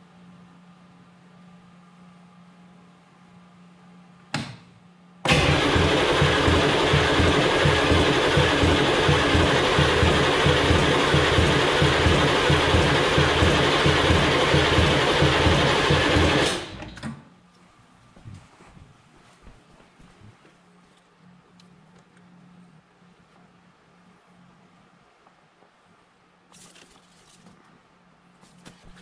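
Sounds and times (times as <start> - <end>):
diesel engine running: 5.3 - 16.8.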